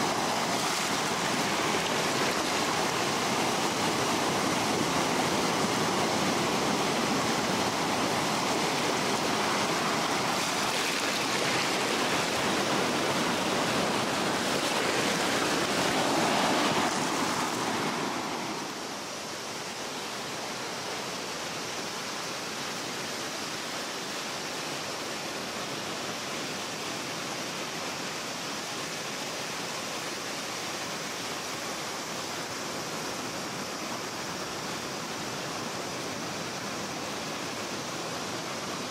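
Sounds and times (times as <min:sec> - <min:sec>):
waves washing over rocks: 0:00.0 - 0:19.1.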